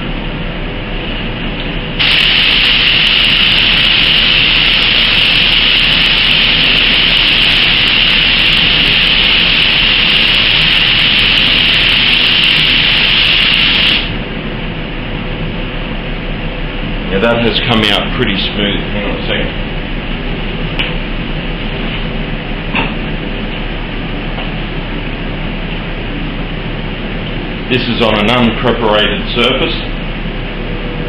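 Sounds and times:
spray gun hissing: 0:02.0 - 0:14.2.

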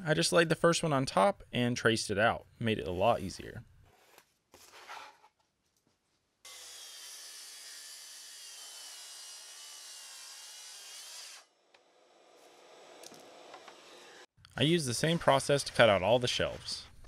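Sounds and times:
circular saw cutting plywood: 0:06.5 - 0:14.3, 0:14.9 - 0:17.0.

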